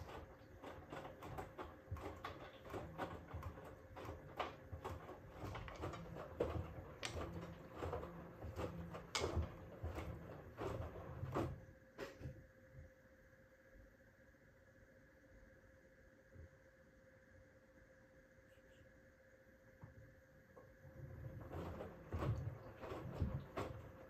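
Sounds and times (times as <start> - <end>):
washing machine drum turning: 0.0 - 12.3, 20.9 - 24.0.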